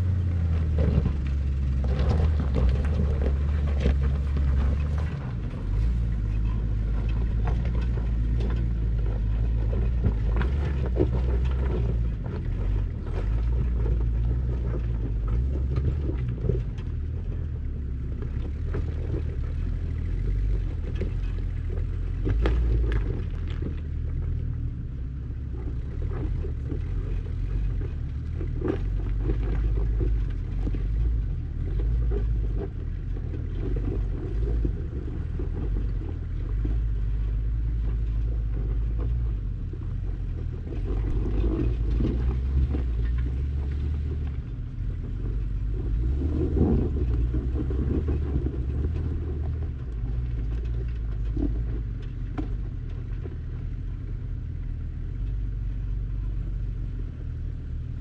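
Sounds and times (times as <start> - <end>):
vehicle engine rumbling under load: 0.0 - 58.0.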